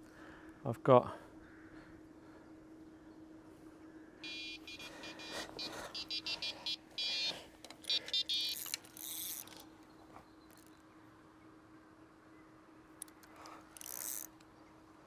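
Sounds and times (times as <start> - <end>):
electronic bite alarm beeps: 4.2 - 8.7.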